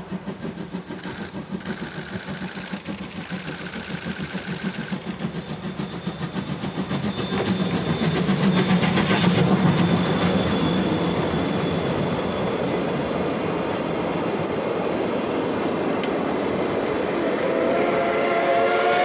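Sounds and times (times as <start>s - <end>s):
train wheels rumbling on rails: 0.0s - 19.0s
steam whistle: 17.2s - 19.0s.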